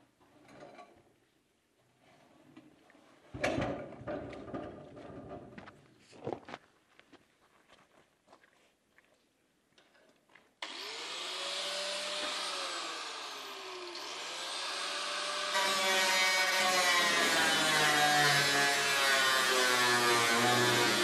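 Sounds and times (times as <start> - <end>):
angle grinder cutting steel: 10.6 - 21.0.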